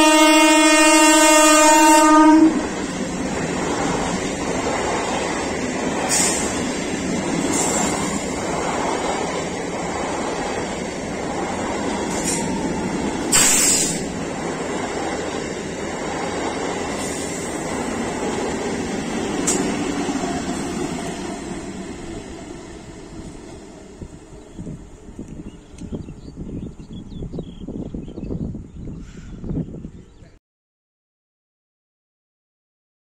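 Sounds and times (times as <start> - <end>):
train wheels on rails: 2.0 - 26.9
sharp hissing bursts: 5.4 - 8.6, 12.0 - 14.2, 16.9 - 17.8.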